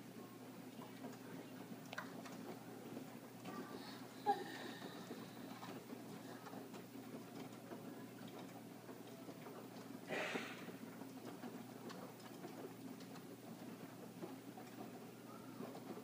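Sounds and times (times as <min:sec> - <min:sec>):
washing machine humming: 0:00.0 - 0:16.0
soft ticks of turning drum: 0:04.8 - 0:10.1
short hiss: 0:10.1 - 0:10.7.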